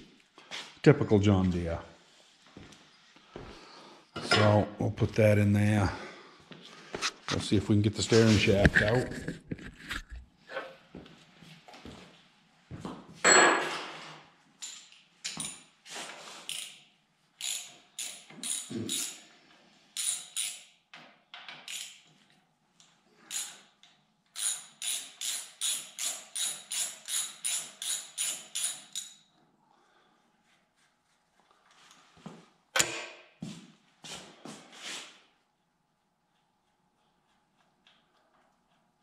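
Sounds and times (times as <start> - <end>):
ratchet wrench clicking: 16.5 - 16.8, 17.4 - 19.2, 20.0 - 20.8, 21.6 - 22.1, 23.3 - 29.2.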